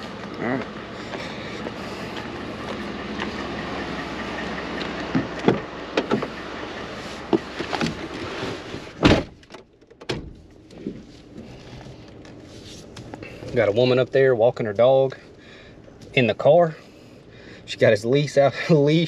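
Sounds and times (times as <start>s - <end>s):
truck door shutting: 4.8s - 6.4s, 7.2s - 10.5s.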